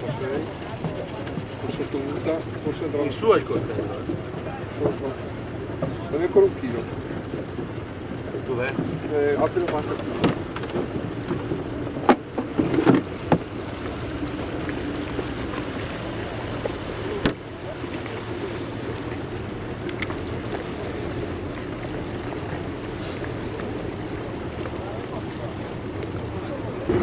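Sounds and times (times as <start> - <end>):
outboard motor idling: 0.0 - 27.0.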